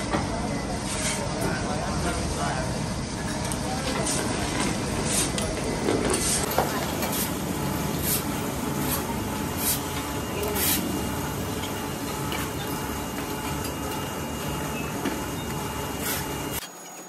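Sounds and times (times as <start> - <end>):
furnace rushing noise: 0.9 - 16.6
molten metal pouring: 6.4 - 16.6.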